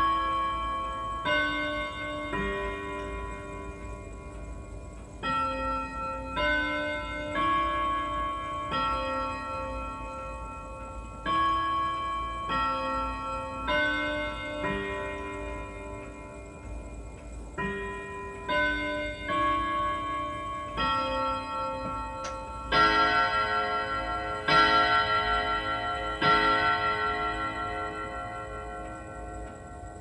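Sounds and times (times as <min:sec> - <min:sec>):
wall clock chiming on gongs: 0:00.0 - 0:30.0.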